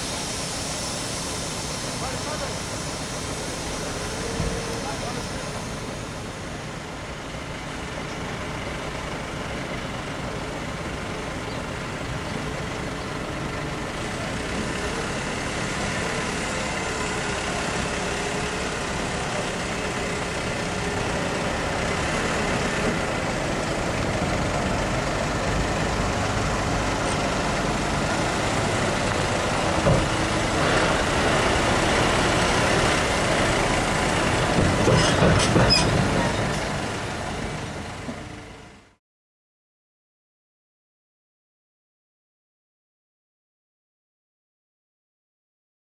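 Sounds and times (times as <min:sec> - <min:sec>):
diesel truck engine running: 0:00.0 - 0:39.0.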